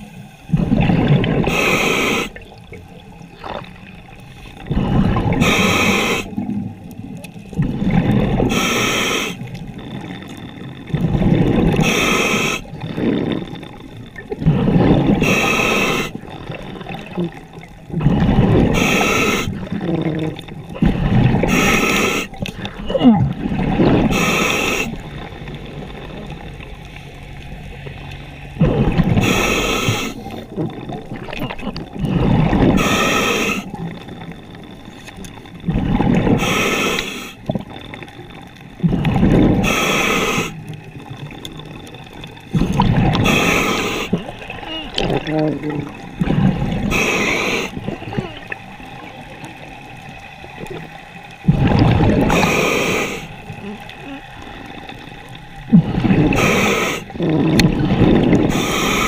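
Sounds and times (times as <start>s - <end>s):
burble of exhaled bubbles: 0.0s - 36.7s, 37.3s - 59.0s
hissing regulator inhale: 1.4s - 2.4s, 4.4s - 6.4s, 8.3s - 10.6s, 11.5s - 16.5s, 18.0s - 20.0s, 20.8s - 22.8s, 23.9s - 25.2s, 28.3s - 30.5s, 32.0s - 34.3s, 35.8s - 37.5s, 38.8s - 40.8s, 42.3s - 44.4s, 45.8s - 47.9s, 52.2s - 55.1s, 56.3s - 59.0s.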